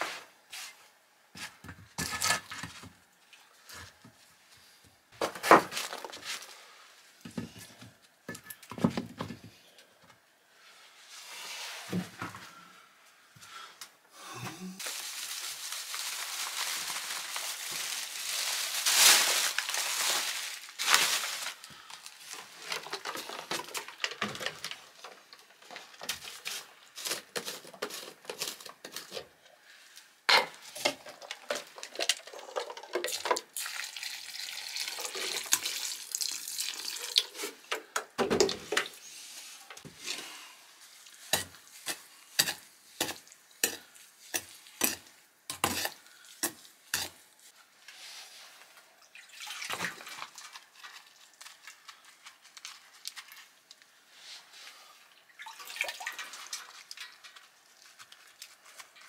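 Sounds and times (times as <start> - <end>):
powder pouring from paper bag: 14.8 - 21.6
water pouring into pot: 33.6 - 37.4, 49.1 - 50.6, 55.3 - 57.2.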